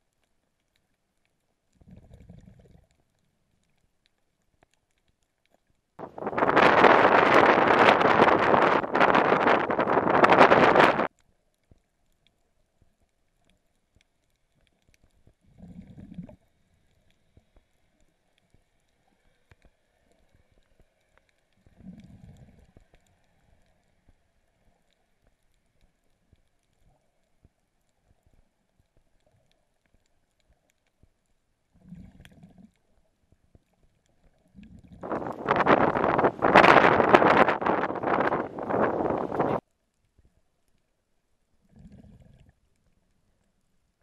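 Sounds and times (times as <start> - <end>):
muffled underwater rushes: 6.0 - 11.1, 34.5 - 39.6
wind noise on microphone: 6.0 - 11.1, 35.0 - 39.6.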